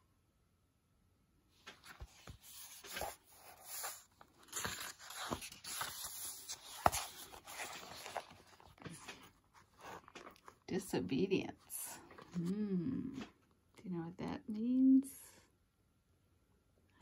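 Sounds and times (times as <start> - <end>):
book pages turning: 1.6 - 10.7, 12.0 - 13.4.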